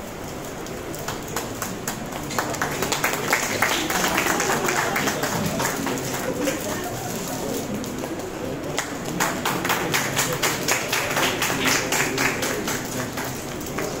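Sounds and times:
hand clapping: 1.0 - 6.7, 8.7 - 14.0.

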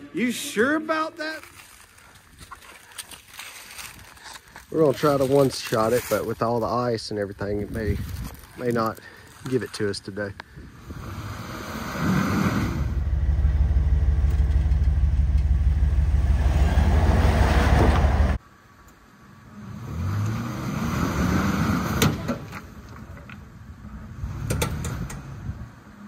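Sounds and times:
truck engine running under load: 12.8 - 18.4.

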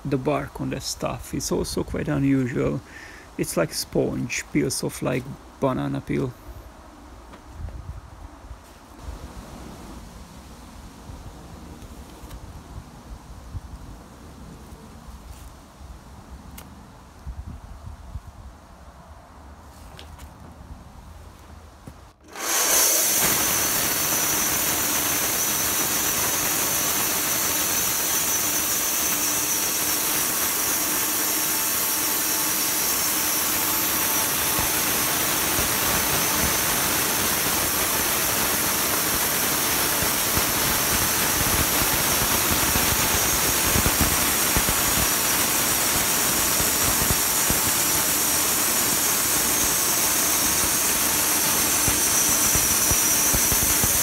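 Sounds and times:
band sawmill cutting log: 22.2 - 54.0.

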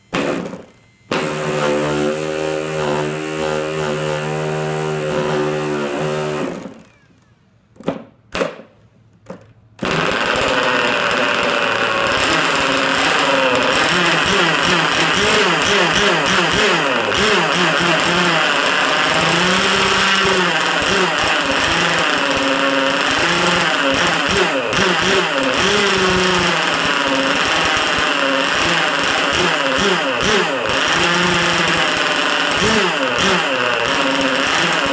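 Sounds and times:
engine running rough: 0.0 - 6.9, 9.8 - 34.9
electric starter spinning: 0.0 - 7.0, 9.8 - 34.9.

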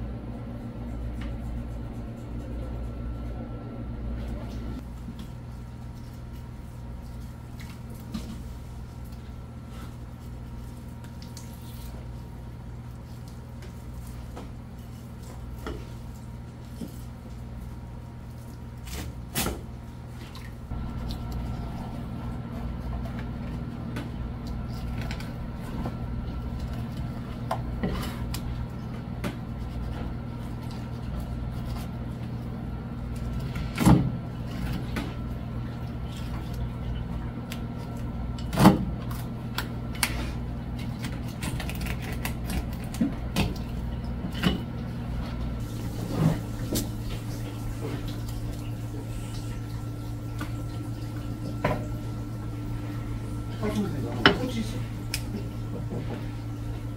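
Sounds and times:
kitchen machinery hum: 0.0 - 56.9.

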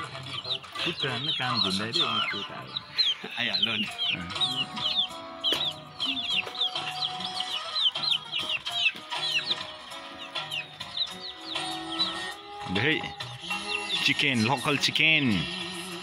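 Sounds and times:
background music: 0.0 - 16.0
chicks peeping: 0.0 - 16.0.

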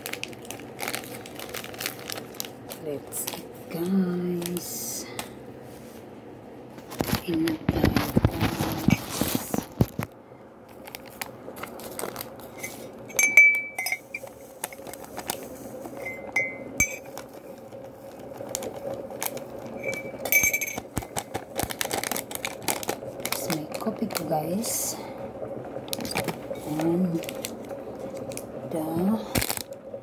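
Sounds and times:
mug and tableware clinking: 13.1 - 14.2, 16.0 - 17.1, 19.9 - 20.8.

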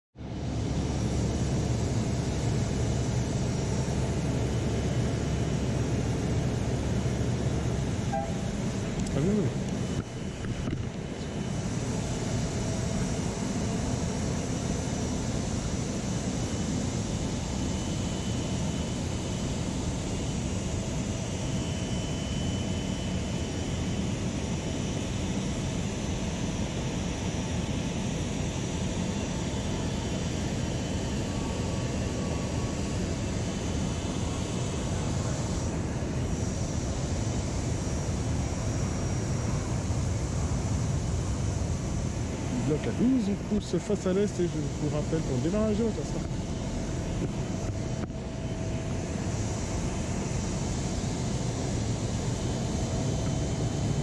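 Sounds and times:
jet aircraft whine: 0.2 - 54.0
faint high tones: 8.1 - 8.6.

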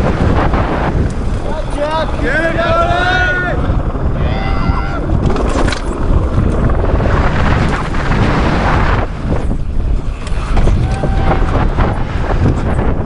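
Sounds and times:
bike tyres on loose dirt and rock: 0.0 - 13.0
wind buffeting microphone: 0.0 - 13.0.

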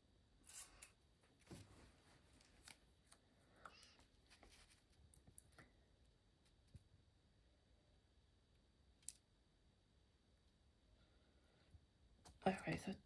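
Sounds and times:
tape rustling: 0.5 - 5.6.

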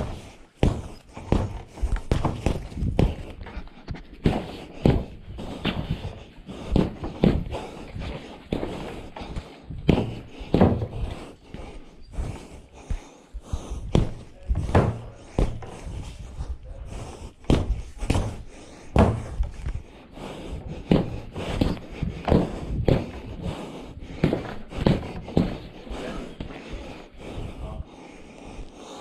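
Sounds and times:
gloves thudding on punching bag: 0.0 - 3.4, 4.2 - 6.0, 6.7 - 8.8, 9.8 - 11.0, 13.9 - 15.7, 17.4 - 19.5, 20.8 - 23.4, 24.2 - 25.7.

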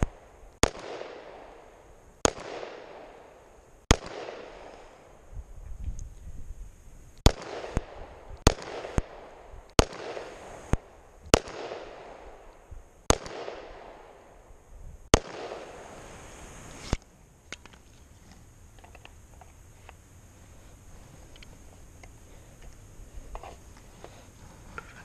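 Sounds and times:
pistol shots with echo: 0.0 - 5.2, 7.2 - 12.5, 13.1 - 14.4, 15.1 - 15.8
quieter sharp cracks: 0.0 - 5.2, 7.2 - 14.5, 15.1 - 20.0.

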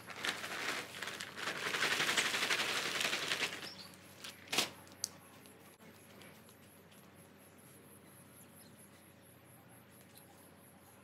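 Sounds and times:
gritty material pouring from bag: 0.0 - 3.7.

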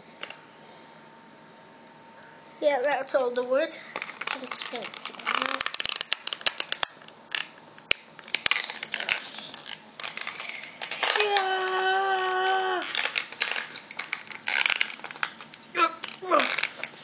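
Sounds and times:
plastic packaging crinkling: 3.8 - 17.0.

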